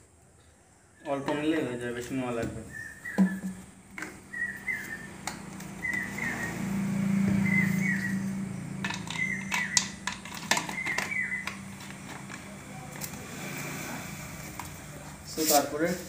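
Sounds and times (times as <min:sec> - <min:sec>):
plastic bottle clicks and knocks: 0:02.4 - 0:04.2
small bird chirping: 0:02.6 - 0:03.6, 0:04.2 - 0:11.9.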